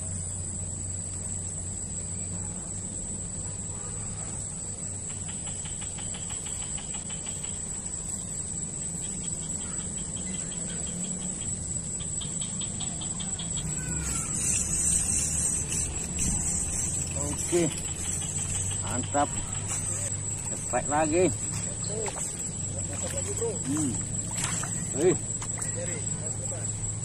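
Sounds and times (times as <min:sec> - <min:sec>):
insects chirping pulses: 0:00.0 - 0:27.0
insects droning: 0:00.0 - 0:27.0
hiss: 0:13.8 - 0:20.1.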